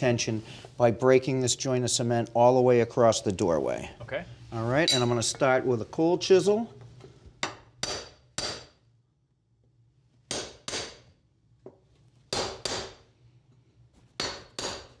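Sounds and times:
hammer striking steel chisel: 0:07.4 - 0:08.8, 0:10.3 - 0:11.0, 0:12.3 - 0:13.0, 0:14.2 - 0:15.0.

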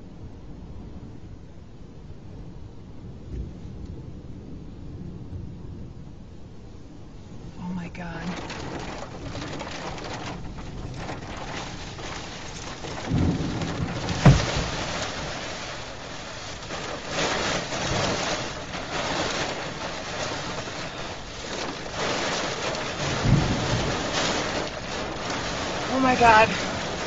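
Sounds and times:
wind gusts: 0:00.0 - 0:27.0
heavy rain beating on a car: 0:06.8 - 0:27.0
low thuds: 0:08.3 - 0:27.0.

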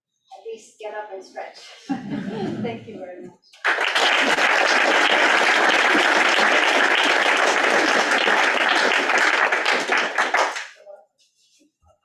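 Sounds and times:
audience applauding: 0:03.6 - 0:10.8.

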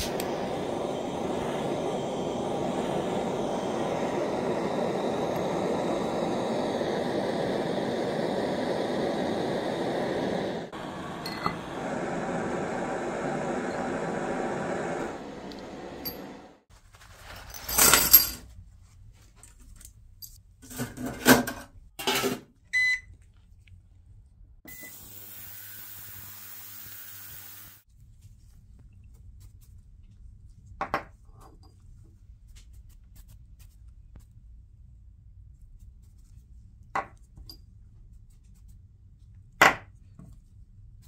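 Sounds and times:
cleaner tank hissing: 0:00.0 - 0:16.7
ultrasonic cleaner beeps: 0:22.8 - 0:23.1, 0:24.7 - 0:25.8.

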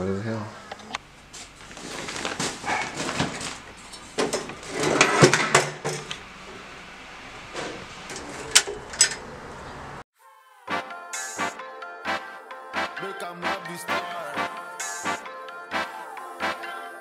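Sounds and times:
metal stepladder clanking: 0:02.6 - 0:06.2, 0:07.5 - 0:09.3.

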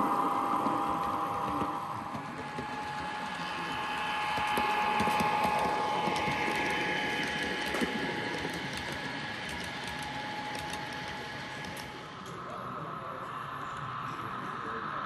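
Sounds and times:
wheels clicking on track: 0:00.0 - 0:12.0
model train whirring: 0:00.0 - 0:15.0.

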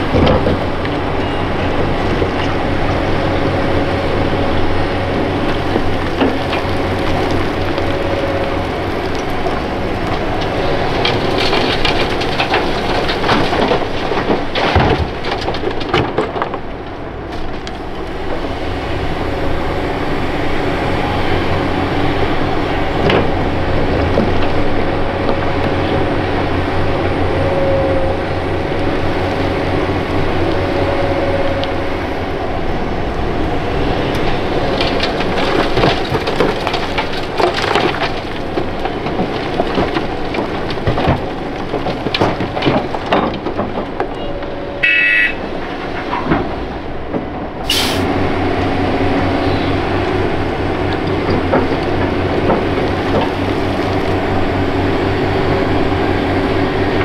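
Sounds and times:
excavator diesel engine whining: 0:00.0 - 0:57.0
stones clattering into truck body: 0:11.0 - 0:16.8, 0:34.8 - 0:44.3
short sharp hiss: 0:47.7 - 0:48.0.

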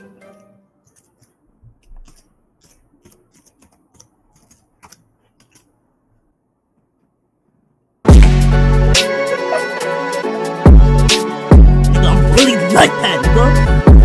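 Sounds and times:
keyboard typing clicks: 0:00.9 - 0:05.7.

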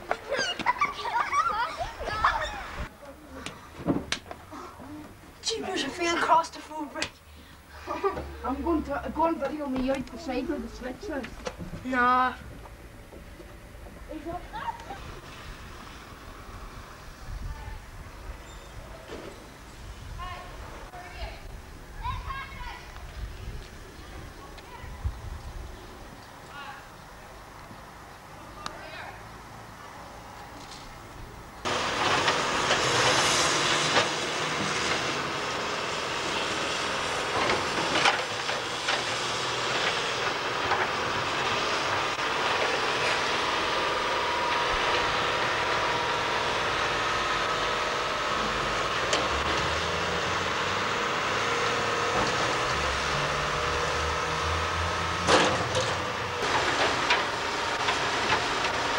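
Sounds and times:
machinery engine drone: 0:31.6 - 0:58.9.

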